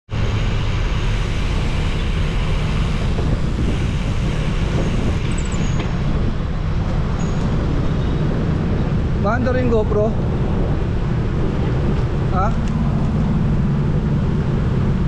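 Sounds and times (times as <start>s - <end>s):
wind buffeting microphone: 0.2s - 15.0s.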